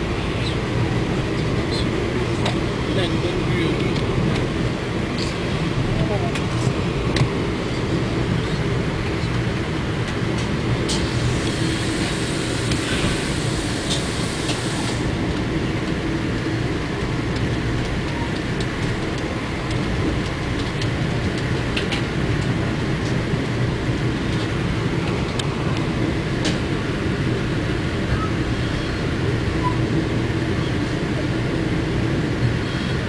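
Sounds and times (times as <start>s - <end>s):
train wheels rumbling on rail: 0.0s - 33.0s.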